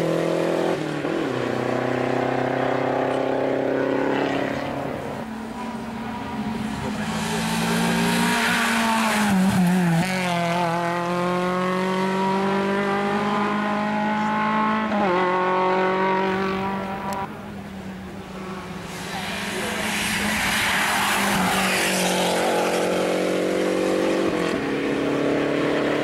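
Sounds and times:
race car engine accelerating: 0:00.0 - 0:17.4.

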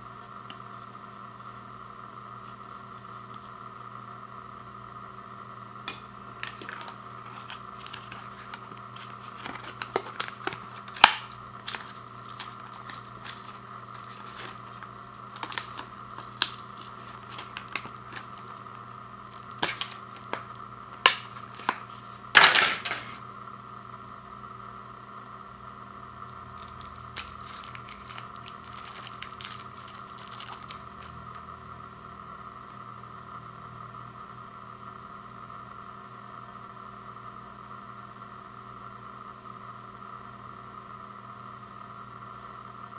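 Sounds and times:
crackles of paper and plastic: 0:06.4 - 0:23.2, 0:26.5 - 0:31.4
paper packaging tearing: 0:06.4 - 0:23.2, 0:26.6 - 0:31.4.

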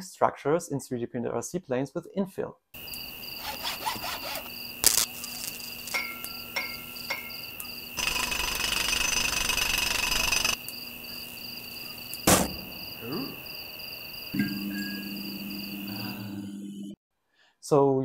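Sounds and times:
crickets chirping: 0:02.8 - 0:17.0
sharp click: 0:12.2 - 0:12.7
steady high tone: 0:14.4 - 0:17.0.

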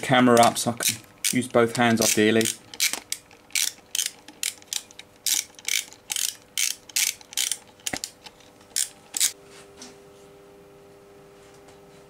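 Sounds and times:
socket ratchet clicking: 0:00.4 - 0:08.2.

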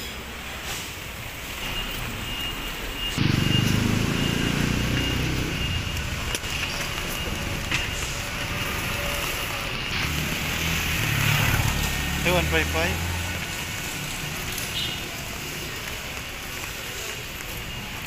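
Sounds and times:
wet street hiss: 0:00.0 - 0:18.0
motorcycle passing: 0:03.1 - 0:15.8
motorcycle approaching: 0:03.1 - 0:16.0.

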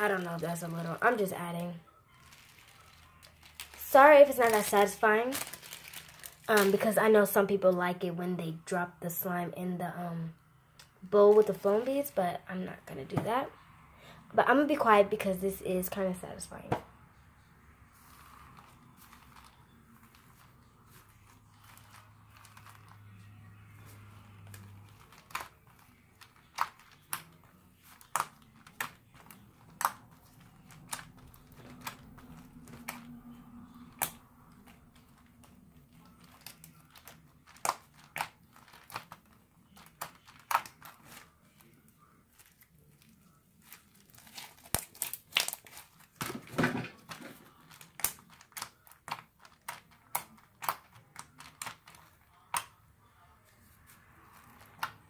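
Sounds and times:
slime crackling and popping: 0:00.0 - 0:07.0, 0:24.4 - 0:41.6, 0:42.3 - 0:46.4, 0:47.0 - 0:52.8.

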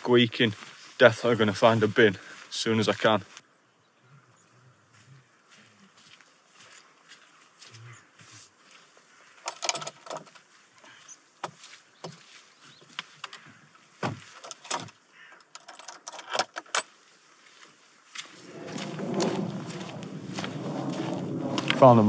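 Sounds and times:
footsteps on wet grass: 0:00.0 - 0:03.5, 0:04.9 - 0:09.4, 0:10.3 - 0:14.4, 0:16.9 - 0:22.0
wooden gate latch clicking: 0:09.5 - 0:10.3, 0:14.4 - 0:16.8
rustling rumble close to microphone: 0:18.2 - 0:22.0.

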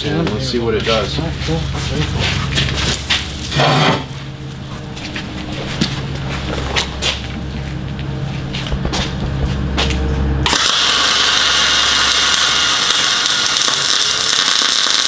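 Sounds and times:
low steady hum: 0:00.0 - 0:10.5
welding arc hissing and crackling: 0:10.5 - 0:15.0.

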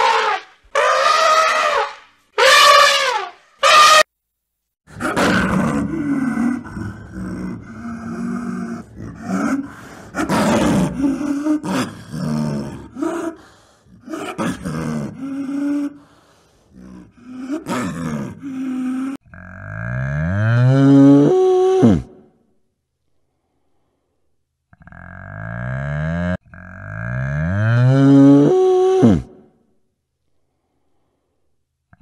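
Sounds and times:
big cat calling: 0:04.9 - 0:13.4.

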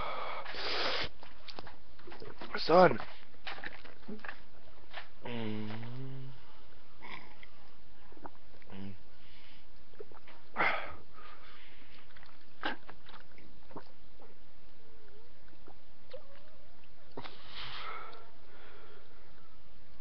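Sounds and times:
person sniffing through nose: 0:00.4 - 0:01.2, 0:17.2 - 0:18.2.

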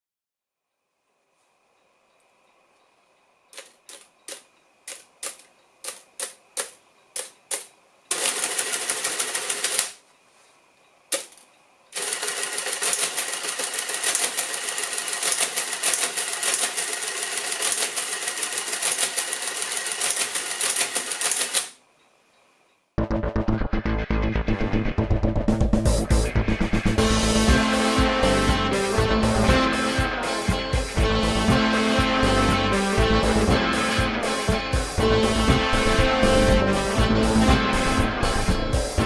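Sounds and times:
calculator mechanism clattering: 0:03.5 - 0:10.0, 0:12.0 - 0:21.8.

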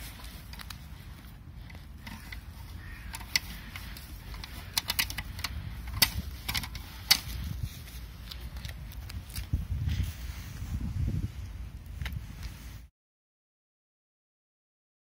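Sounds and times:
metallic clicks and rattles: 0:00.0 - 0:09.5
steady low rumble: 0:00.0 - 0:12.9.

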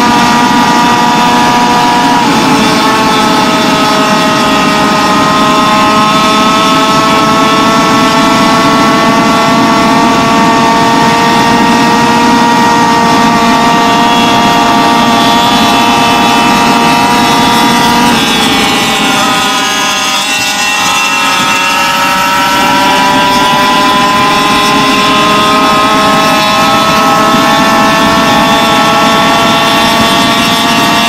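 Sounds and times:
two-stroke scooter engine running: 0:00.0 - 0:31.0.

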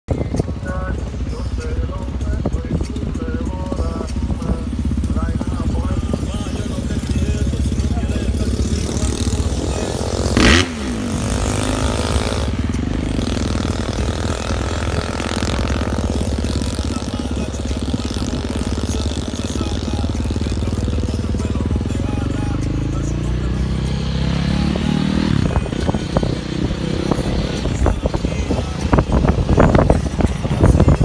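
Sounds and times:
motorcycle engine running: 0:00.1 - 0:31.0
road and wind noise: 0:00.1 - 0:31.0
motorcycle passing close by: 0:06.8 - 0:30.6.

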